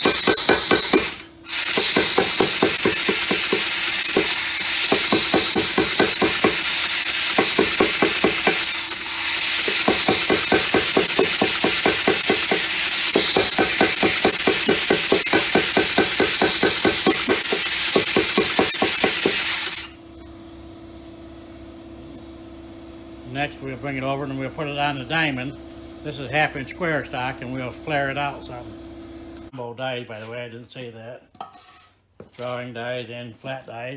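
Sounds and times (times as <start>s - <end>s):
power hammer striking metal: 0.0s - 20.0s
steady hum: 0.0s - 29.5s.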